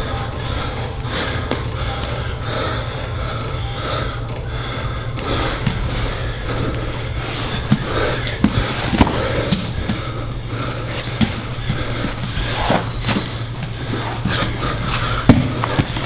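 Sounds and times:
steady low hum: 0.0s - 16.0s
bodies thudding on mats: 5.6s - 16.0s.

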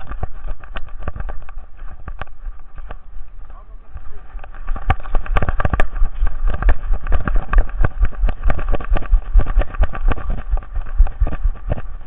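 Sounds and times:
low rumble: 0.0s - 12.0s
camera knocks and thumps: 4.4s - 12.0s.

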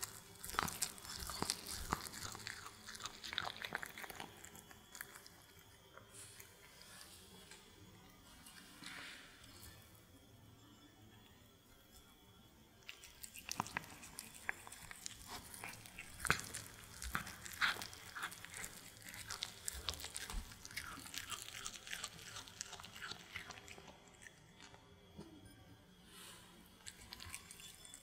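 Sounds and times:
cat chewing crunchy food: 0.0s - 7.6s, 12.8s - 25.2s, 26.7s - 28.0s.

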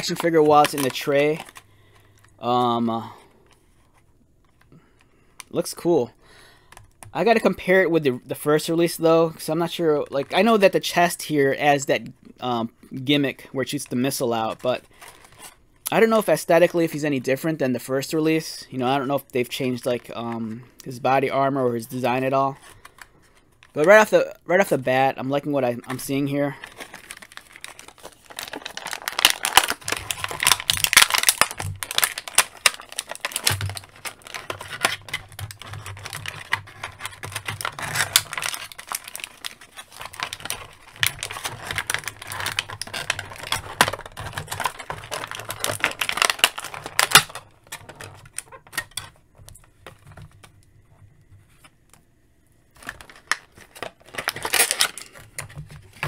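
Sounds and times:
plastic packaging crinkling: 0.0s - 3.6s, 25.4s - 50.6s, 52.7s - 56.0s.

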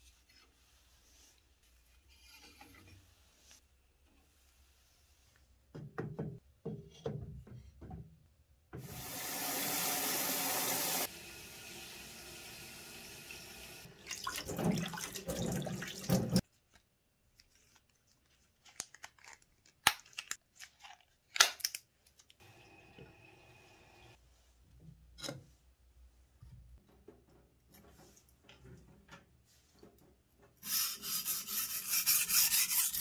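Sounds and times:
water spraying from sink sprayer: 8.8s - 16.4s
rubbing sounds: 29.4s - 33.0s.

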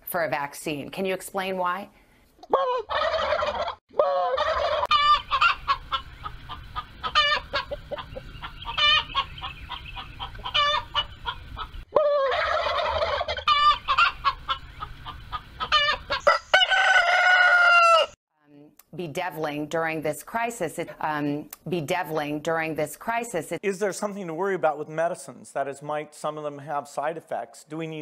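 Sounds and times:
chicken clucking: 2.5s - 17.2s
turkey gobbling: 2.5s - 18.1s.

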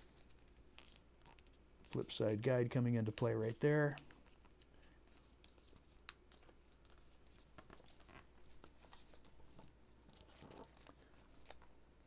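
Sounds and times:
paper being folded: 0.1s - 2.1s, 5.1s - 11.8s.

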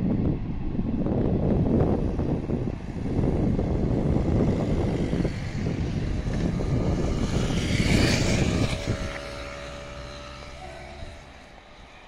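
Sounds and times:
train rumbling in motion: 9.8s - 12.0s.

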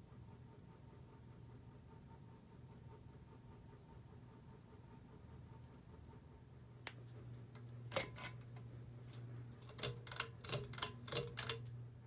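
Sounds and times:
steady low hum: 0.0s - 12.0s
fan pull-chain switch clicks: 9.6s - 11.8s.

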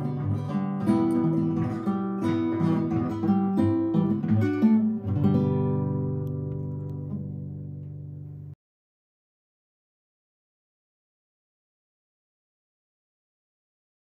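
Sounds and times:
guitar strummed and picked: 0.0s - 8.6s.

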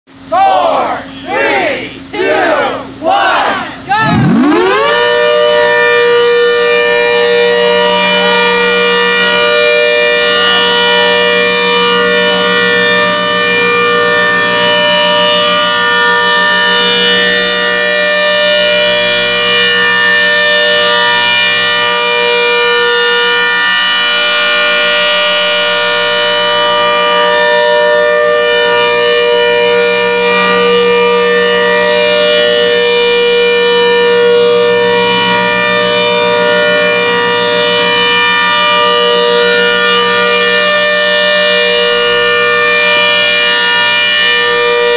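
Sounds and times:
mechanical siren steady tone: 0.1s - 44.9s.

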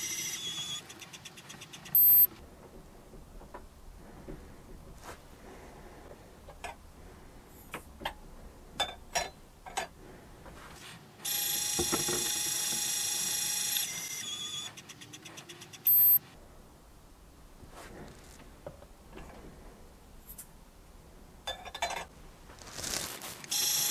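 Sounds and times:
short high beep: 2.0s - 2.3s, 15.9s - 16.2s.

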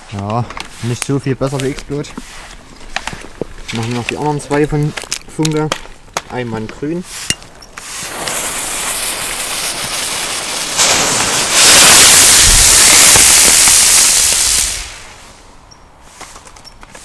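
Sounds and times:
fuse sizzling: 6.8s - 16.3s
firework rushing hiss: 7.1s - 15.6s.

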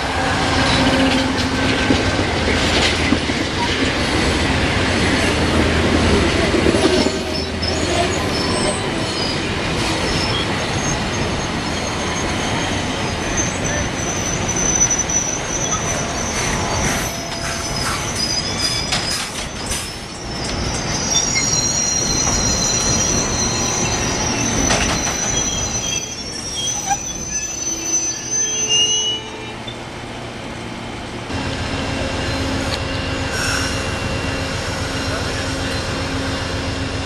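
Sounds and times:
train cars rumbling: 0.0s - 37.0s
train wheels squealing: 6.8s - 29.8s, 32.0s - 36.9s.

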